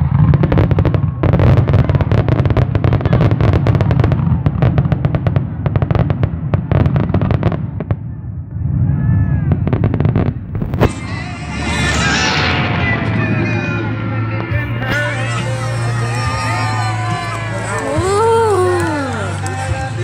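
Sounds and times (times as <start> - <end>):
fireworks cracks and bangs: 0.0 - 20.0
low rumble: 7.9 - 18.5.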